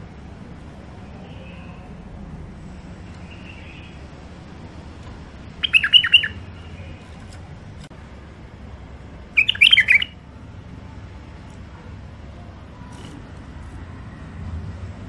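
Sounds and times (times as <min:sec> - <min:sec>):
bird singing: 0:03.0 - 0:04.1, 0:05.5 - 0:07.2, 0:09.3 - 0:10.4.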